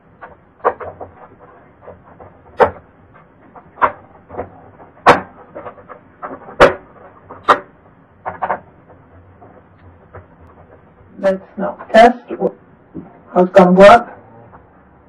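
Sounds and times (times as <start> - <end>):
plastic clicks and knocks: 0.2 - 10.8.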